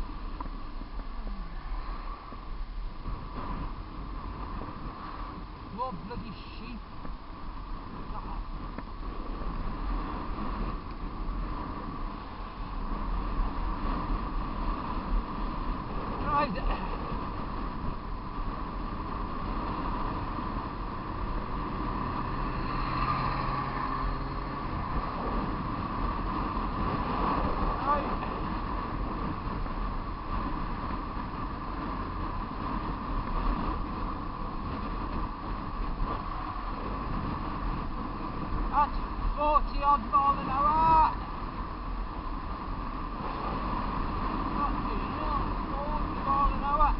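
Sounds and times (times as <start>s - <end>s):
wind buffeting microphone: 0.0s - 46.9s
motorcycle engine: 16.9s - 38.7s.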